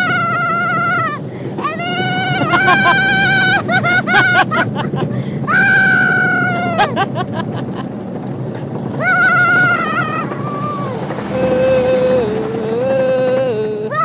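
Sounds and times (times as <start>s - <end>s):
kart wheels rumbling on asphalt: 0.0s - 14.0s
wind on the microphone: 0.0s - 14.0s
knocks and rattles: 7.0s - 13.9s.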